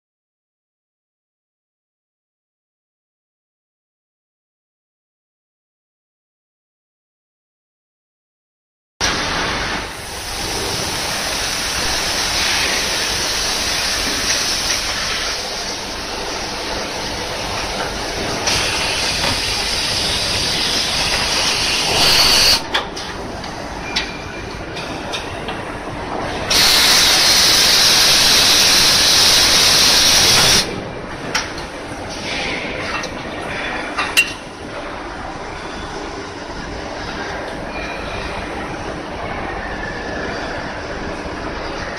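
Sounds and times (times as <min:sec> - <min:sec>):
machine coolant spray hissing: 0:09.0 - 0:22.7, 0:26.5 - 0:30.8.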